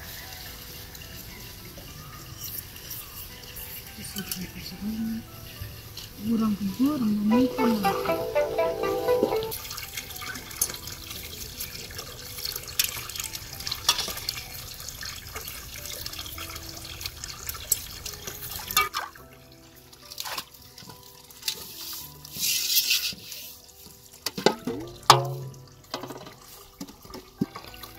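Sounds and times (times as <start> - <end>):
water splashing onto stones: 9.9 - 19.2.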